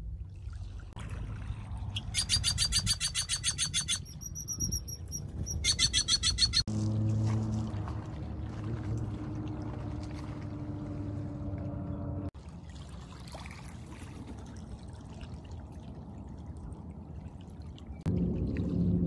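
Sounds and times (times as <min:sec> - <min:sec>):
loud low hum: 0:06.7 - 0:12.3, 0:18.1 - 0:19.0
small waves lapping on pebbles: 0:12.4 - 0:17.4.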